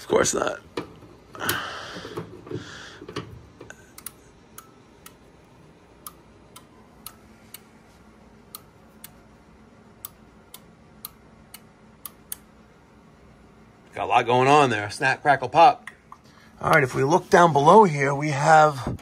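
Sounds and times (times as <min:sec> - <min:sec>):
furnace controls clicking: 0:00.0 - 0:07.7, 0:08.4 - 0:09.3, 0:09.9 - 0:12.5
faint steady hum: 0:00.0 - 0:19.0.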